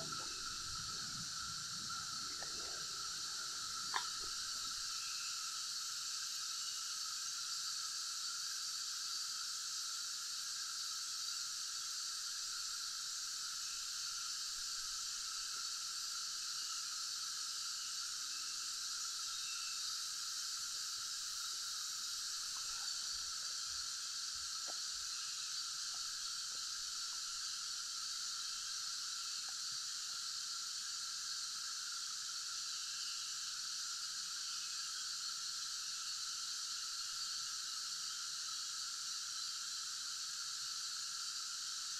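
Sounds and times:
high-pitched insect drone: 0.0 - 41.9
faint clicks: 1.9 - 4.7.

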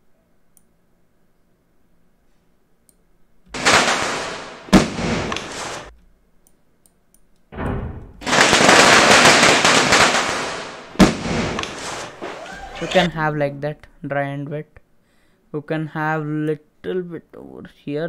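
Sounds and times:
firecrackers crackling: 3.5 - 5.9, 8.2 - 12.5.

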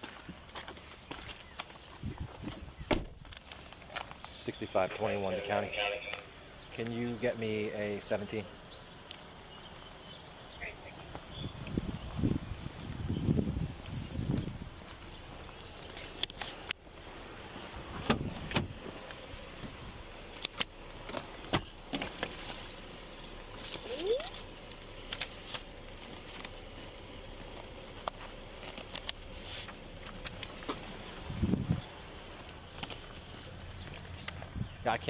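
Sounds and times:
keys jangling: 21.8 - 24.5.

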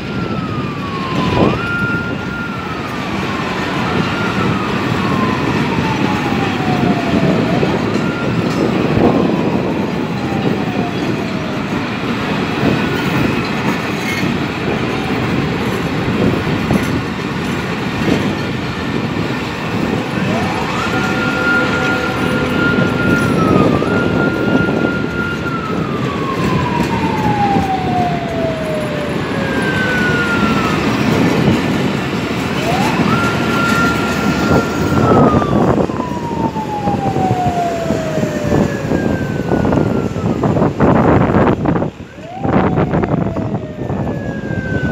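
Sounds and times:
siren wailing: 0.0 - 44.9
train wheels clattering on track: 7.3 - 20.2, 29.1 - 35.8.

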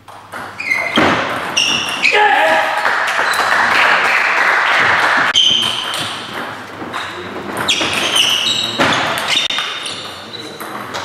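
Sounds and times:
people clapping: 2.5 - 5.9.

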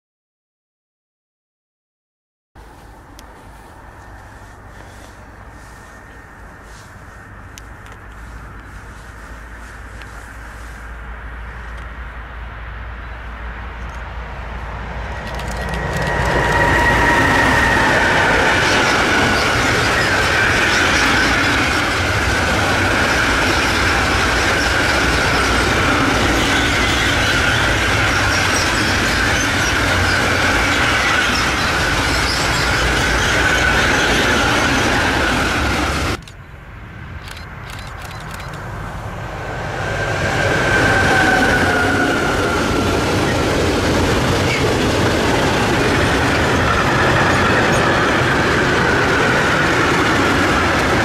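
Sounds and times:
train wheels rolling on rails: 2.6 - 36.5, 37.2 - 51.0
high-pitched wheel squeal: 15.7 - 36.1, 39.9 - 43.4.

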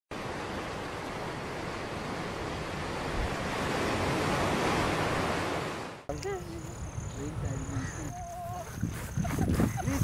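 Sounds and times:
waves breaking on beach: 0.1 - 6.1.

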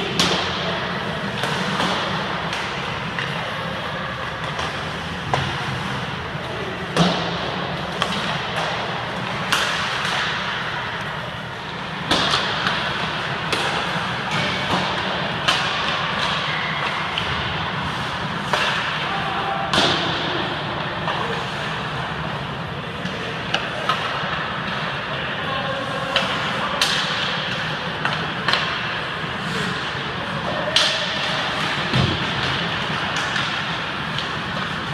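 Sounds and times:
hockey sticks hitting pucks: 0.0 - 34.9
pucks striking boards: 0.0 - 34.9.

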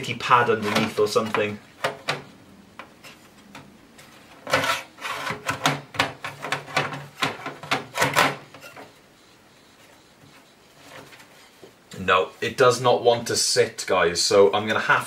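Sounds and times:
metal clunks and scrapes: 0.4 - 9.0.

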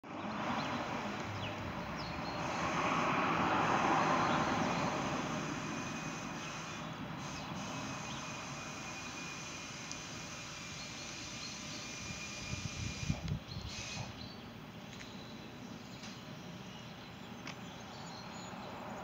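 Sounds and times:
vehicle passing: 0.0 - 8.8.

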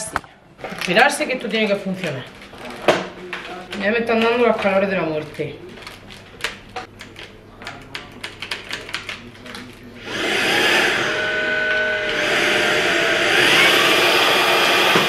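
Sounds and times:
vacuum cleaner motor whine: 10.0 - 15.0.

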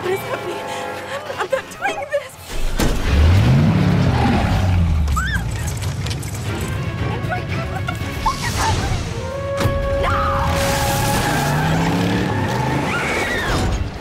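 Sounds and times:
background music with gliding pitches: 0.0 - 2.5, 6.2 - 12.8.

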